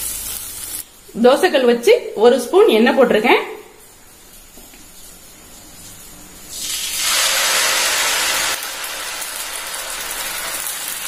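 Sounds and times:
batter sizzling on hot griddle: 0.0s - 1.1s, 3.8s - 11.0s.

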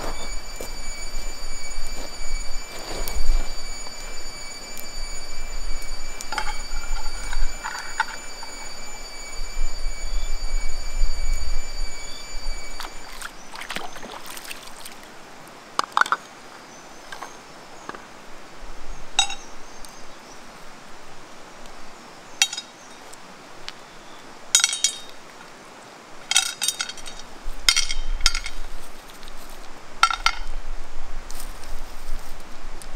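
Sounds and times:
stones clinking in metal pan: 22.4s - 22.7s, 24.6s - 25.1s, 26.3s - 28.6s, 30.0s - 30.5s.

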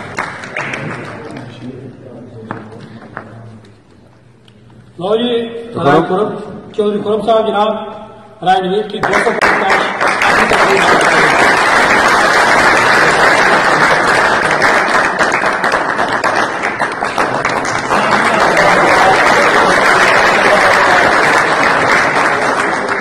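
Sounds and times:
audience applauding: 0.0s - 1.6s, 9.0s - 23.0s.

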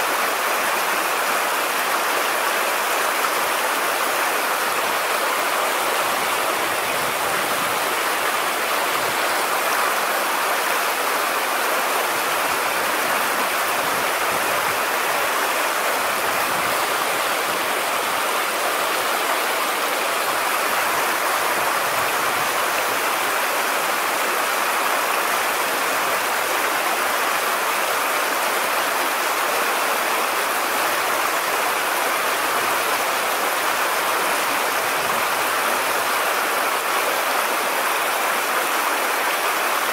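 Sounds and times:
stream water rushing: 0.0s - 39.9s.

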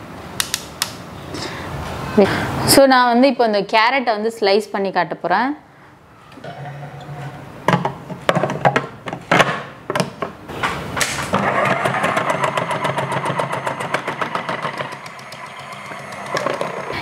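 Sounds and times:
plastic parts knocking and clicking: 7.7s - 10.4s, 11.0s - 17.0s
food processor motor running: 11.4s - 17.0s.

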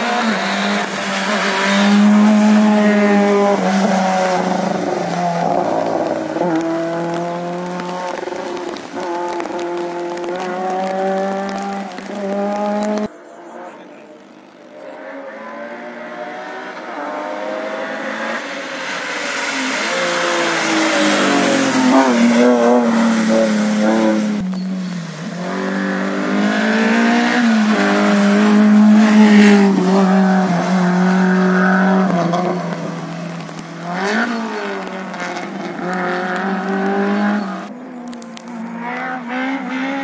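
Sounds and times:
tyres hissing on wet road: 0.0s - 13.1s, 18.2s - 37.7s
car accelerating through gears: 0.0s - 13.8s, 14.7s - 37.7s
rally car engine at full throttle: 0.0s - 40.0s.

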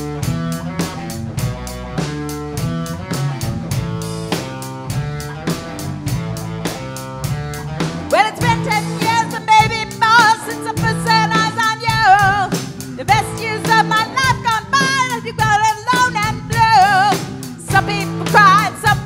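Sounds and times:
bass guitar: 0.0s - 19.0s
drum kit steady beat: 0.0s - 19.0s
electric guitar: 0.0s - 19.0s
person singing with vibrato: 8.2s - 19.0s.

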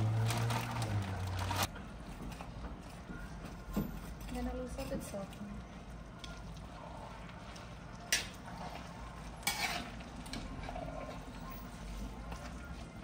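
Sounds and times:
spoon stirring thick food: 5.7s - 13.0s.

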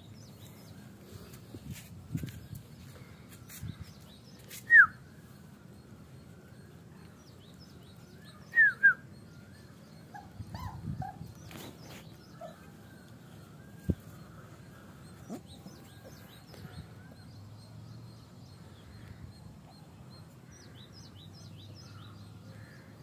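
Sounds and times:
puppy yelping: 10.1s - 11.3s
puppy whimpering: 10.1s - 11.4s.

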